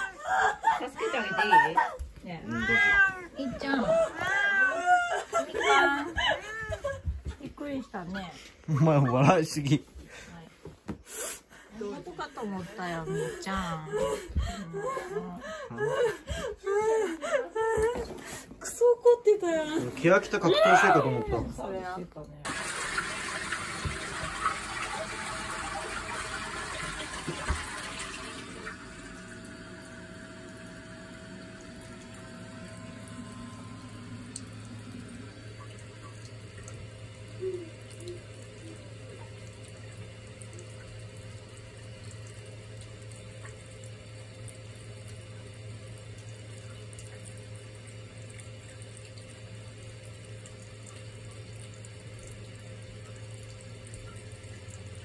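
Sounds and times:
low steady hum: 0.0 - 22.8, 27.9 - 55.0
water trickling into toilet bowl: 19.9 - 55.0.

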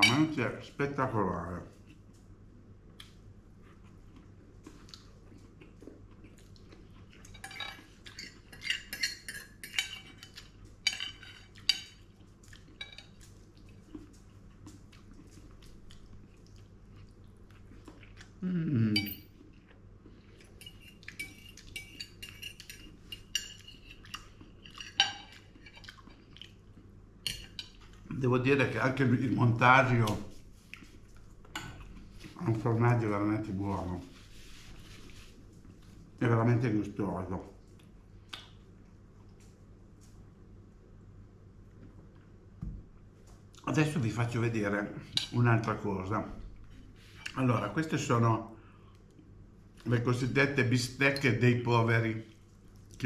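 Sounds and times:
cutlery scraping on a plate: 7.2 - 12.0, 20.6 - 25.9.

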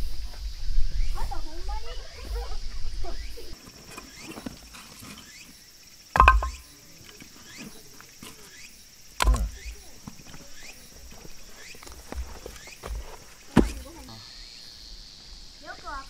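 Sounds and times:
firewood knocking on woodpile: 6.2 - 6.7, 9.2 - 10.2, 12.1 - 14.1.

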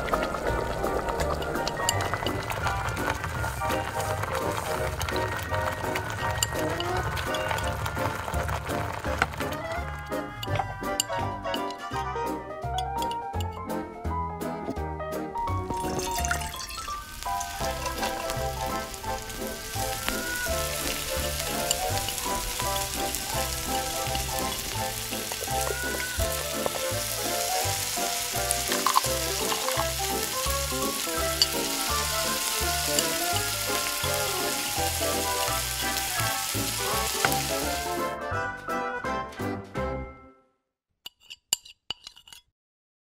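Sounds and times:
oil sizzling in a wok: 0.0 - 11.7, 15.6 - 38.1.

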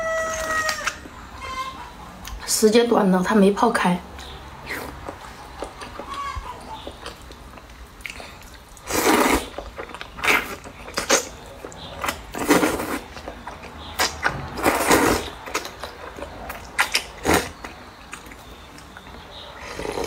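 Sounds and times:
chewing: 4.6 - 20.0
noodles being slurped: 8.0 - 11.4, 12.0 - 13.3, 14.0 - 17.6.

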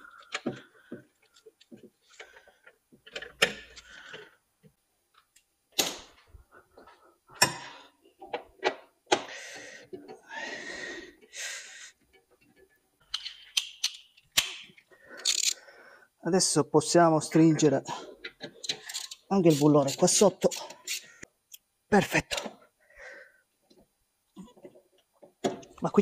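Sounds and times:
car parts clicking and knocking: 0.1 - 5.9.

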